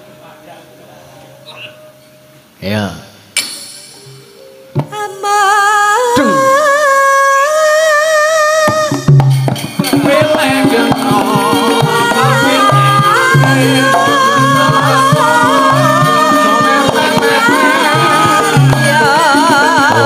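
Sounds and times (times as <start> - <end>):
gamelan accompaniment: 0.0 - 2.7, 3.4 - 6.5, 8.7 - 20.0
woman singing: 4.8 - 20.0.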